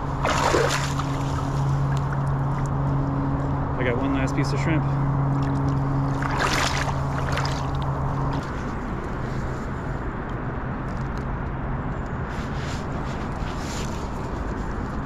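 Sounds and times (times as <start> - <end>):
water splashing: 0.0 - 2.8, 5.4 - 8.5
river water rushing and sloshing: 0.0 - 8.8
steady low hum: 0.0 - 10.8.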